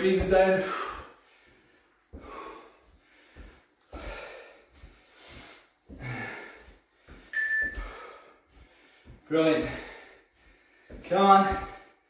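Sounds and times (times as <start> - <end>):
man breathing hard: 0.3 - 12.0.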